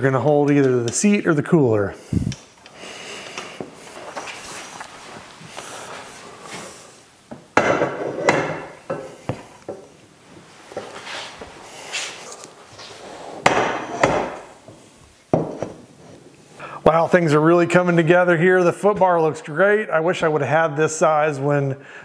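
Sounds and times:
rubbing and handling: 0:10.2 - 0:13.4.

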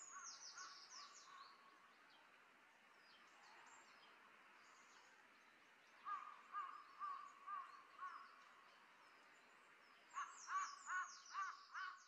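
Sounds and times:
small birds chirping: 0:00.0 - 0:12.0
crow cawing: 0:06.1 - 0:08.2, 0:10.2 - 0:12.0.

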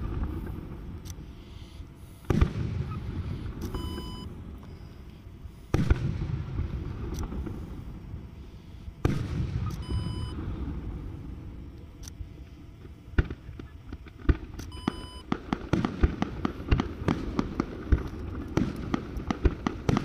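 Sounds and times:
fireworks booming: 0:00.0 - 0:01.0, 0:02.0 - 0:04.6, 0:05.6 - 0:11.7, 0:12.7 - 0:20.0
short high beep: 0:03.7 - 0:04.3, 0:09.7 - 0:10.4.

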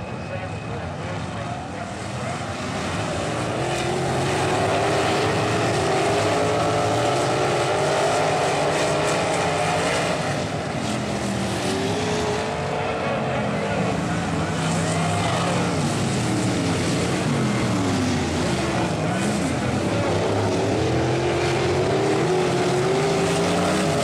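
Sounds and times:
race car engines racing: 0:00.0 - 0:24.0.

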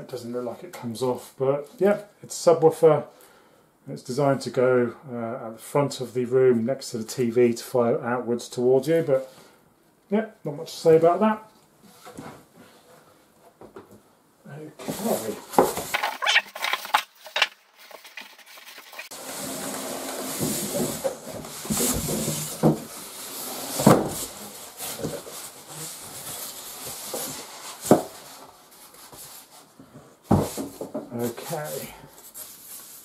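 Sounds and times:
foam pieces rubbing and scraping: 0:14.8 - 0:29.7
plastic wrapping rustling: 0:14.8 - 0:29.7.

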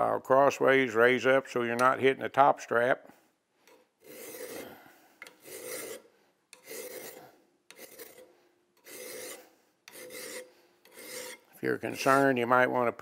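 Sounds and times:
hand file rasping on metal: 0:03.7 - 0:12.2.

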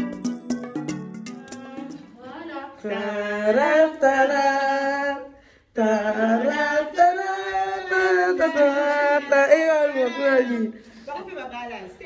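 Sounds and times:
woman singing unaccompanied: 0:01.4 - 0:10.8.

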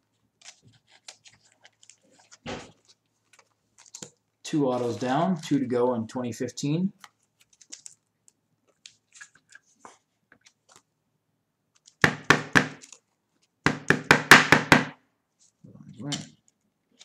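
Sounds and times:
plastic sleeves rustling: 0:00.0 - 0:05.6, 0:07.0 - 0:11.0, 0:11.6 - 0:12.0, 0:15.3 - 0:17.0.

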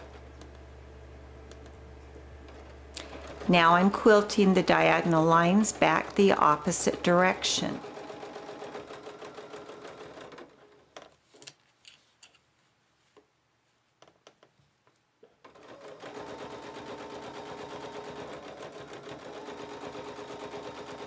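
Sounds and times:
sewing machine stitching: 0:02.5 - 0:11.0, 0:15.2 - 0:21.0.

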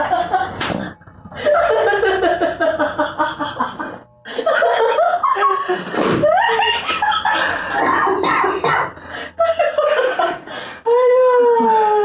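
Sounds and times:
men laughing loudly: 0:00.0 - 0:00.6, 0:01.4 - 0:10.5
sharp smack: 0:00.6 - 0:00.8.

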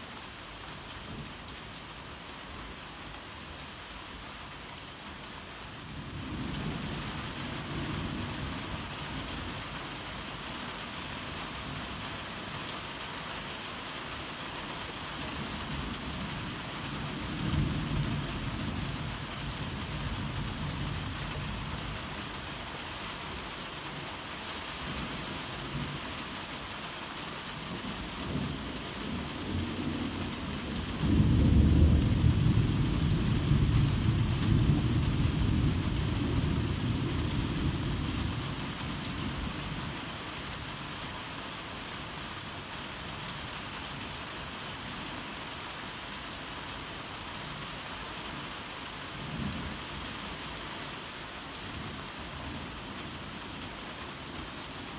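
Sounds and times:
heavy rain falling: 0:00.0 - 0:54.9
thunder rumbling: 0:30.6 - 0:38.2.

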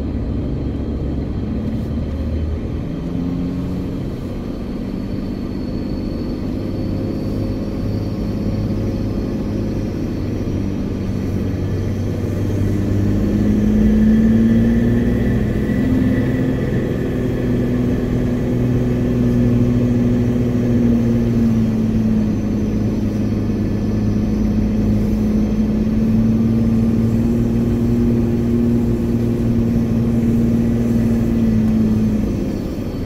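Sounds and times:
vehicle engine droning under load: 0:00.0 - 0:33.0.

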